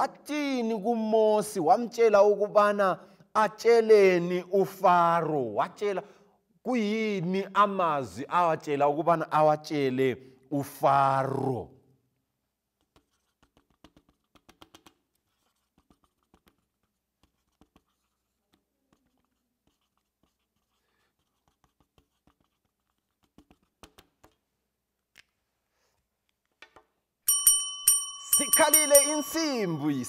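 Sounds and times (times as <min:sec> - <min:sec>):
pen scratching on paper: 0:12.8 - 0:24.0
bell ringing: 0:27.3 - 0:30.0.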